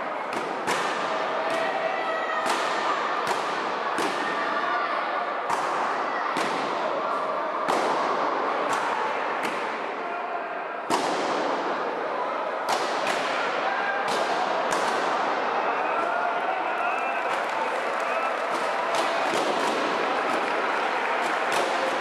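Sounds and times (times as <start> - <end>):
crowd chatter: 0.0 - 22.0
sharp echoing bangs: 10.9 - 12.0.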